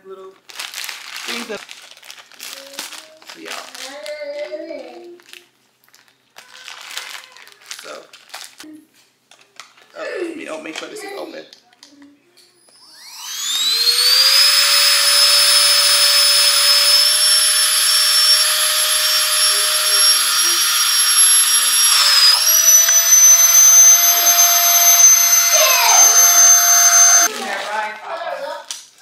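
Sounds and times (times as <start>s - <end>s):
vacuum motor whine: 12.7s - 27.3s.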